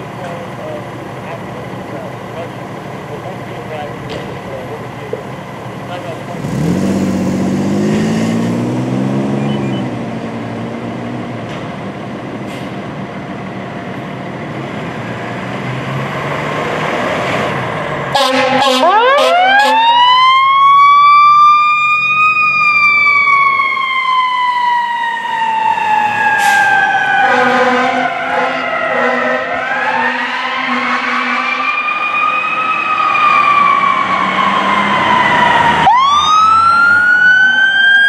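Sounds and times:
diesel engine running: 0.0s - 30.1s
fire truck horn: 18.1s - 20.2s, 25.8s - 32.6s.

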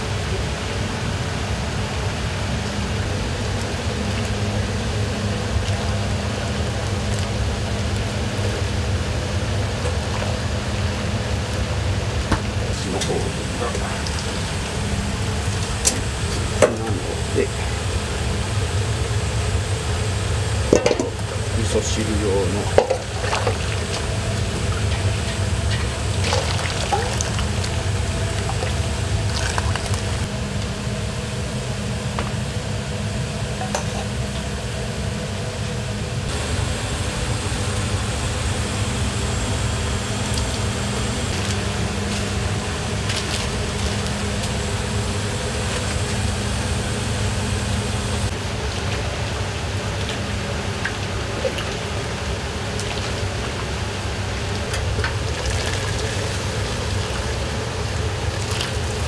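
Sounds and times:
kitchen range rumble: 3.0s - 30.3s
broth being poured: 12.4s - 30.3s.

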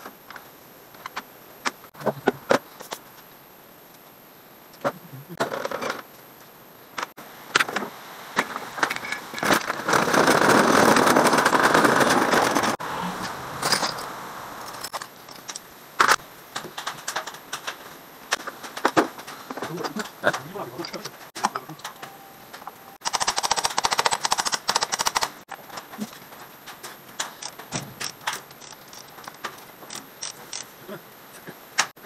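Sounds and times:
dense rattling clatter: 9.4s - 12.8s
hand tools clinking on metal: 11.2s - 15.7s, 19.5s - 23.0s.

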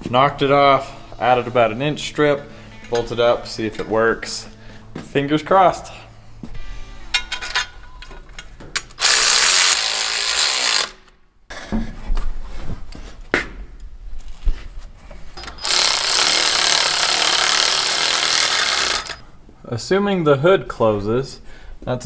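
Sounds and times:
metal clinks and knocks: 7.2s - 8.9s
cordless ratchet running: 9.0s - 11.1s, 15.5s - 19.2s.

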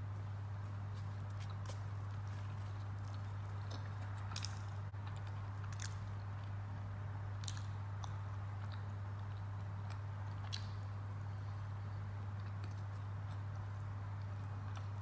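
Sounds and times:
steady low hum: 0.0s - 15.0s
food squishing: 0.2s - 6.6s
chewing: 0.9s - 6.6s, 7.4s - 15.0s.

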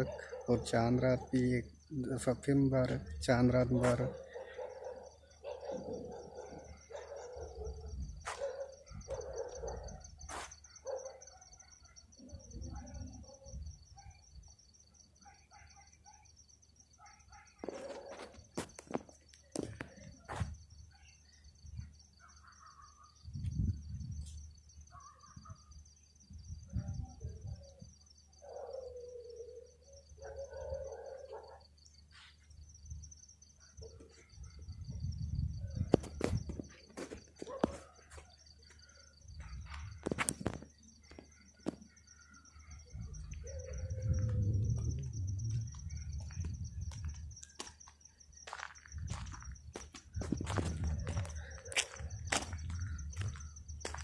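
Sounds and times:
wind on microphone: 26.6s - 27.6s, 34.7s - 36.6s, 43.0s - 47.2s, 50.2s - 51.4s.

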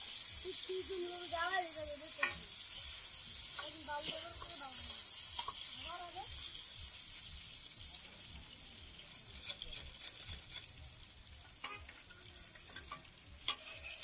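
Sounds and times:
chicken sizzling in oil: 0.0s - 14.0s
metal spatula scraping griddle: 2.1s - 5.8s, 9.0s - 10.8s, 11.5s - 14.0s.

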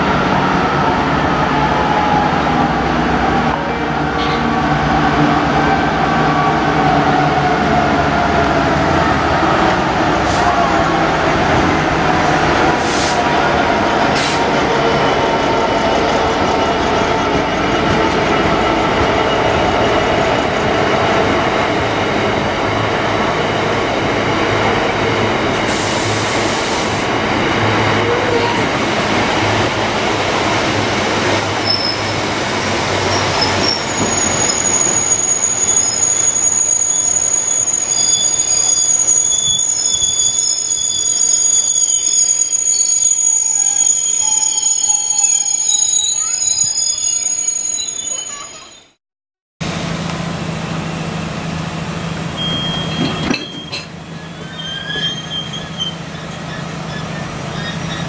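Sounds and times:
diesel locomotive engine passing: 0.0s - 39.1s, 49.6s - 58.0s
brief high hiss: 25.6s - 27.1s, 49.6s - 50.3s
freight wagons rumbling: 50.2s - 58.0s.

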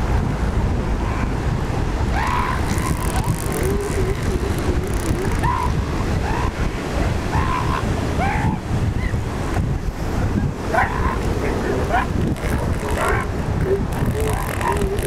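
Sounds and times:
surf: 0.0s - 15.0s
wind on microphone: 0.0s - 15.0s
wavering drawn-out low call: 2.1s - 9.1s, 10.6s - 15.0s
seals yelping: 2.1s - 9.2s, 10.6s - 15.0s.

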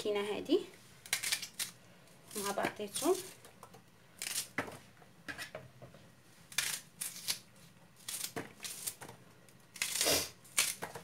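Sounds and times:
papery rustles of onion skin: 6.4s - 11.0s.

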